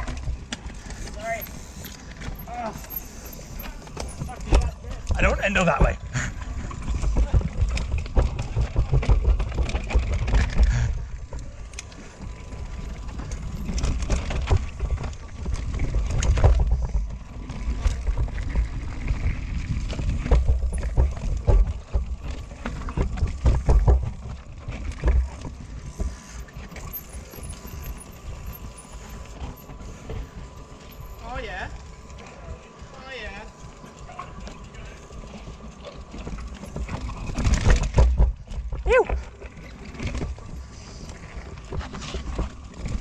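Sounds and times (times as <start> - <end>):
wind rumble on microphone: 0.0 - 32.9
bike rattling and knocking: 0.0 - 43.0
bike tyres rolling over rock: 0.0 - 43.0.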